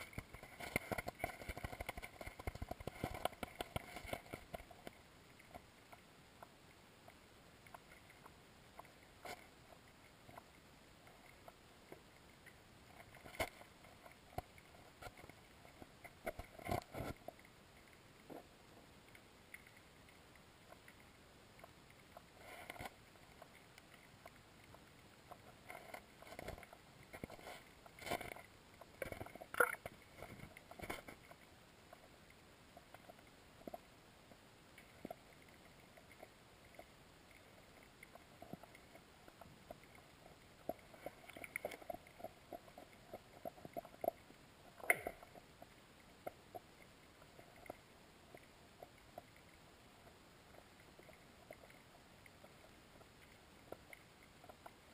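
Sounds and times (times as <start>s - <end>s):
faint underwater clicks and knocks: 0.0s - 54.9s
quiet hiss: 0.0s - 54.9s.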